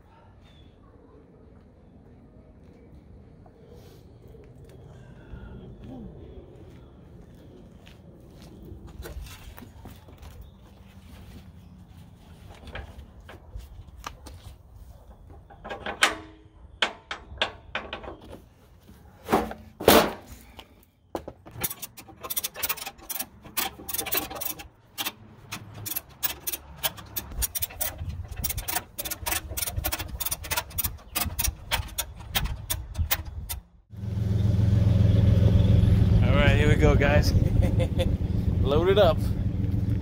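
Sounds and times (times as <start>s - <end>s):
ratchet clicks: 21.5s - 33.6s.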